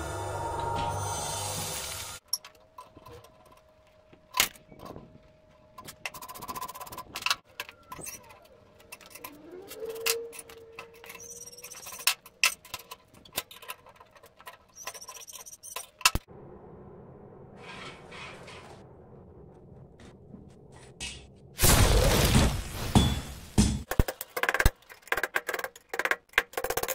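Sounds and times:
wrench clinking and squeaking on steel: 0:02.2 - 0:05.1, 0:05.7 - 0:16.3
steady low noise: 0:16.3 - 0:17.6.

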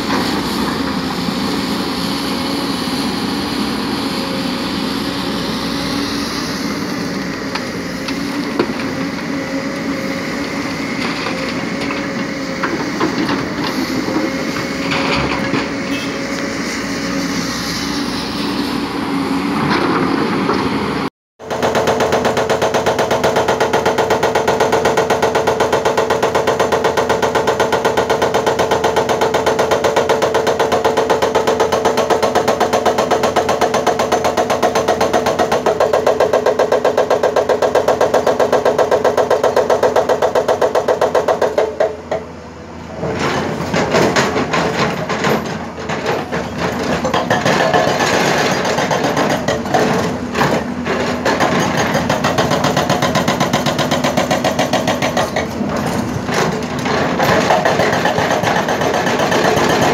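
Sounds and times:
excavator diesel engine running: 0:00.0 - 0:59.9
hydraulic rock breaker hammering: 0:07.2 - 0:16.6, 0:21.4 - 0:59.9.

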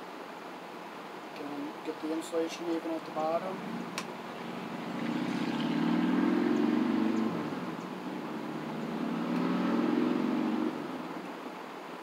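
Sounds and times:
vehicle engine revving: 0:03.0 - 0:11.2.

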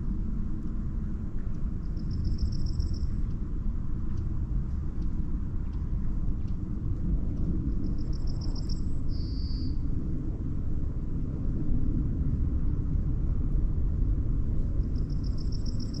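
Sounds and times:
wind buffeting microphone: 0:00.0 - 0:16.0
small bird singing: 0:08.1 - 0:09.8.

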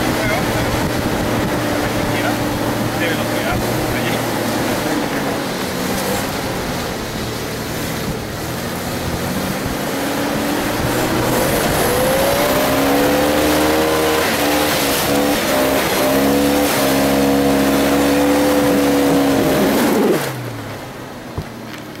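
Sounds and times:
off-road vehicle engine revving: 0:00.0 - 0:22.0.

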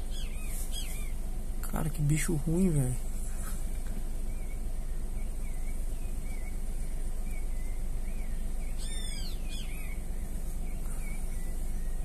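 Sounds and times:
birds chirping: 0:00.0 - 0:12.0
steady low rumble: 0:00.0 - 0:12.0
harsh bird call: 0:04.3 - 0:12.0.

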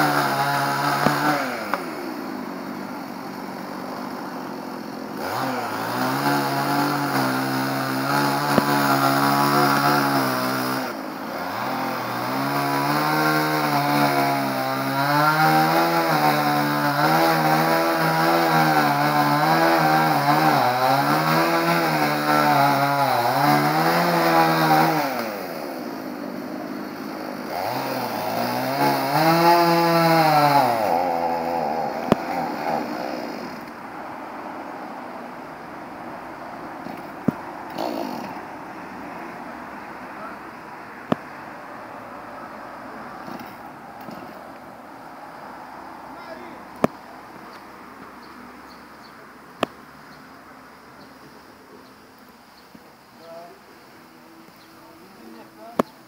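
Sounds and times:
chainsaw cutting wood: 0:00.0 - 0:26.1, 0:27.3 - 0:33.8, 0:36.8 - 0:38.6, 0:43.2 - 0:44.6.

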